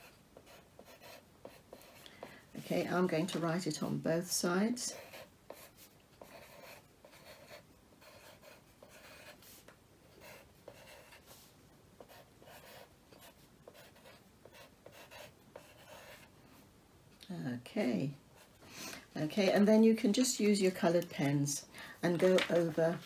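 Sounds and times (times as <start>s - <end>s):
pencil scratching on paper: 0.0s - 4.0s, 4.7s - 16.3s.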